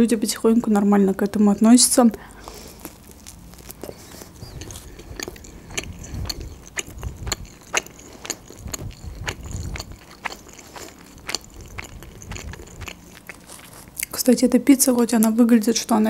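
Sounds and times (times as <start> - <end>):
chewing with mouth clicks: 2.4 - 14.2.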